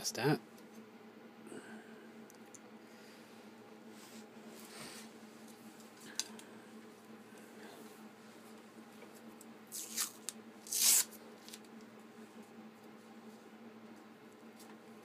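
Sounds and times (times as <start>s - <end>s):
faint steady hum: 0.0s - 15.0s
masking tape tearing off: 9.7s - 11.6s.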